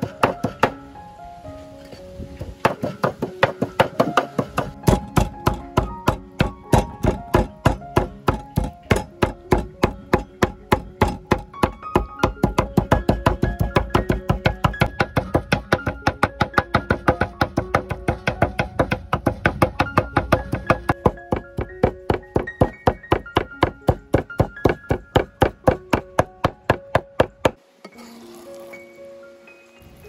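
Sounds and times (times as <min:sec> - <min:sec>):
background music: 0:00.0 - 0:30.0
knife chopping on wooden board: 0:02.6 - 0:27.6.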